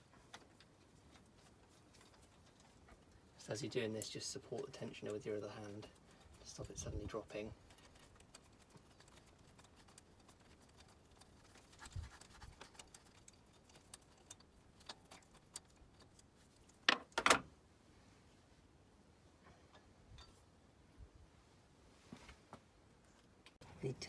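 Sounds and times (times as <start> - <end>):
small metallic clicks and rattles: 12.2 - 17.4.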